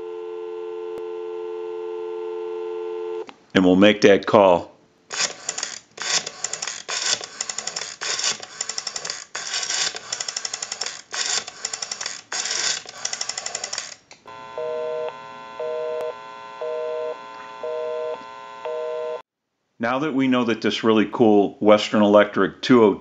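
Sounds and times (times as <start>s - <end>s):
rotary dial clicking: 5.1s - 14.2s.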